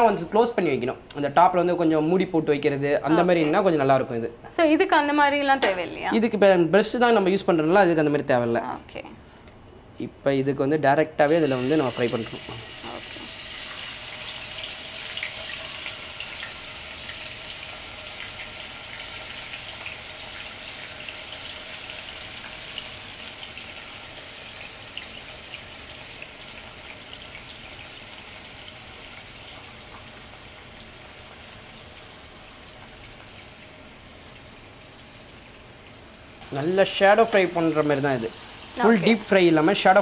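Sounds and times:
chicken sizzling in hot oil: 11.2 - 40.0.

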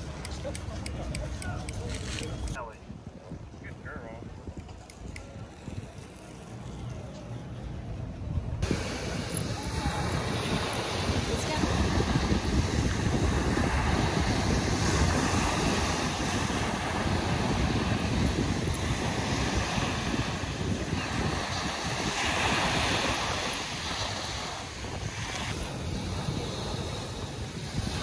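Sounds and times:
wind buffeting microphone: 0.0 - 28.0
ocean surf breaking on beach: 8.6 - 28.0.

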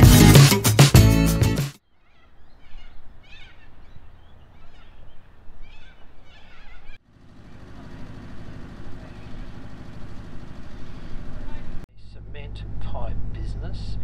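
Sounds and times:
birds chirping: 1.8 - 11.8
steady low hum: 7.1 - 14.0.

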